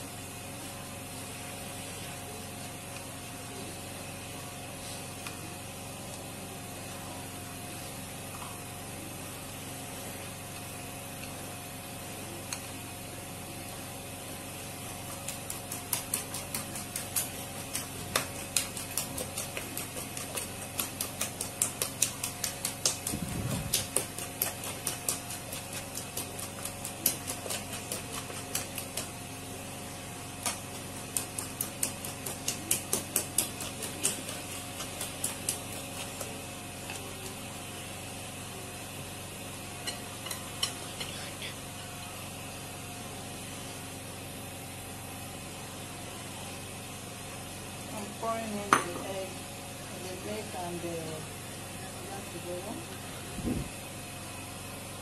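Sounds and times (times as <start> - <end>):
fork clicking against plate: 39.8 - 41.2.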